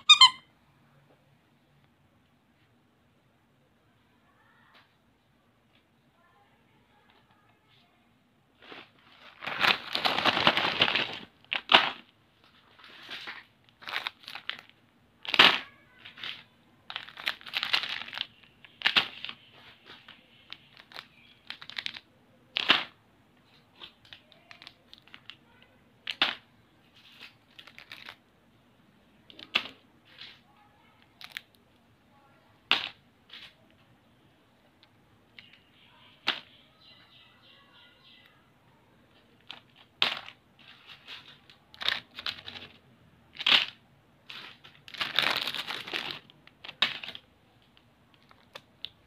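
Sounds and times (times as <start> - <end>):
plastic wrappers crinkling: 8.6 - 28.3, 29.3 - 31.6, 39.4 - 49.0.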